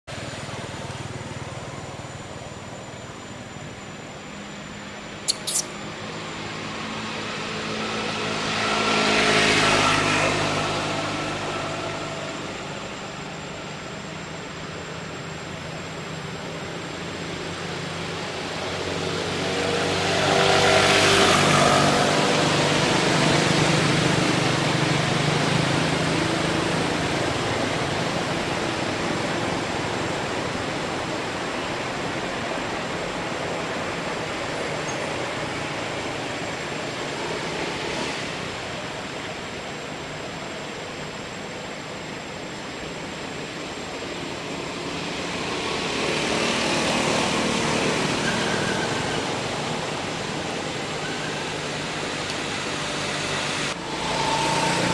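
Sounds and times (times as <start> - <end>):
traffic noise: 0.0 - 54.9
sharp clicks: 5.3 - 5.7
vehicles passing: 5.3 - 14.1, 15.1 - 54.9.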